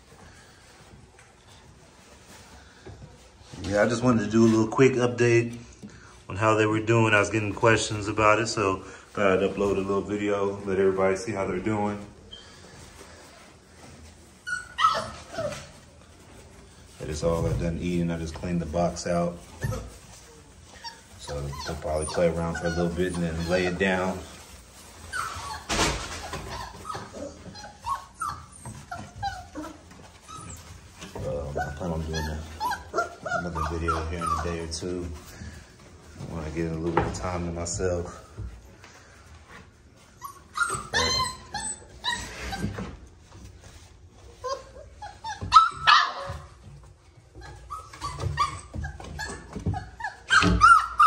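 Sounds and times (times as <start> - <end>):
scuffling: 6.4 - 51.0
puppies crying: 11.4 - 36.3, 39.9 - 51.0.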